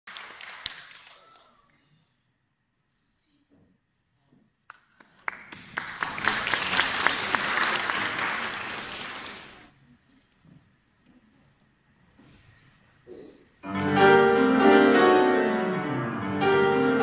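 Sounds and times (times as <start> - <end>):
audience applauding: 0.1 - 1.8, 4.7 - 9.7.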